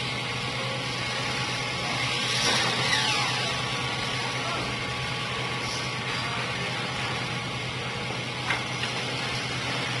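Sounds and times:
falling whine: 0.0 - 8.4
low machine hum: 0.0 - 10.0.

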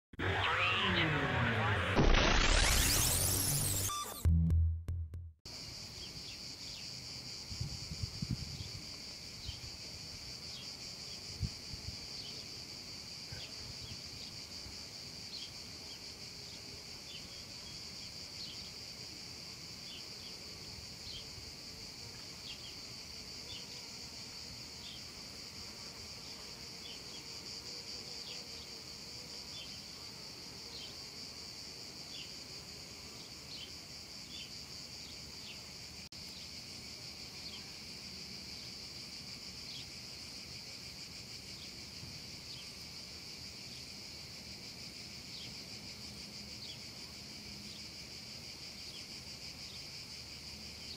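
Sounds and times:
short chirps: 0.2 - 5.1
low thumps: 4.2 - 5.4
cicadas buzzing: 5.5 - 50.9.

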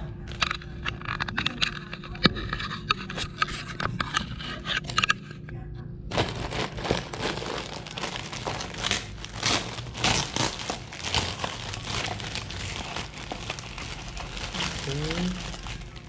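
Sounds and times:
food packaging crinkling: 6.1 - 16.0.

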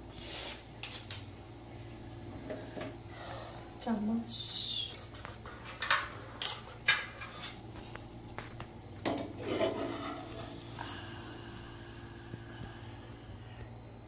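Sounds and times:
spoon scraping dish: 9.4 - 10.5.

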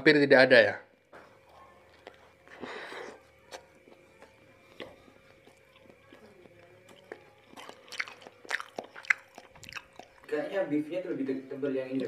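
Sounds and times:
faint steady hum: 0.0 - 12.0
faint chewing: 1.0 - 10.6.

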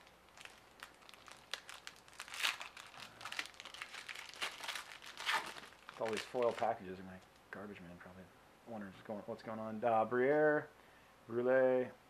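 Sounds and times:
foil card wrappers crinkling: 0.0 - 7.4.

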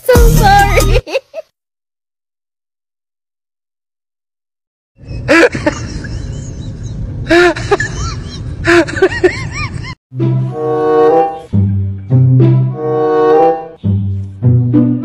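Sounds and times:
outdoor noise: 5.0 - 10.0
string music: 10.1 - 15.0.

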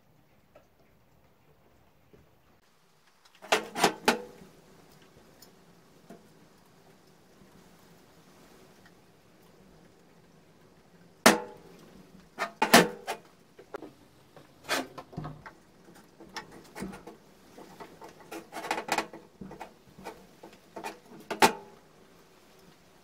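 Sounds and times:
metal knocks and clanks: 14.6 - 15.6.

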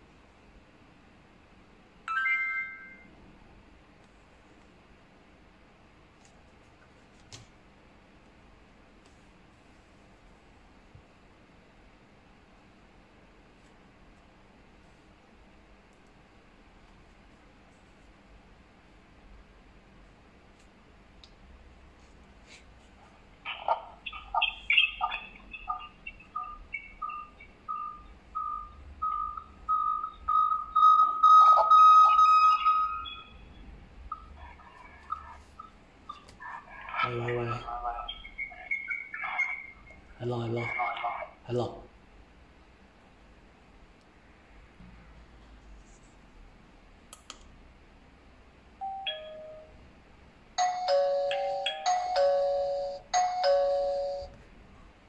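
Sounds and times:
doorbell chime tune: 2.1 - 3.1, 48.8 - 49.8, 50.6 - 54.3
video doorbell beeping: 2.1 - 3.1, 27.1 - 33.3, 48.8 - 49.8, 50.6 - 54.3.

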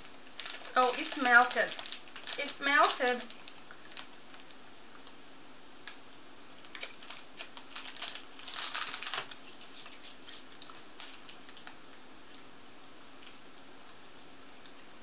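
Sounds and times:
plastic packet crackling: 0.0 - 5.2, 6.6 - 11.8.

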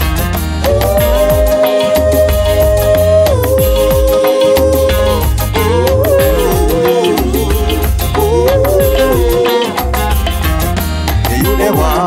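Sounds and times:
reggae instrumental music: 0.0 - 12.0.

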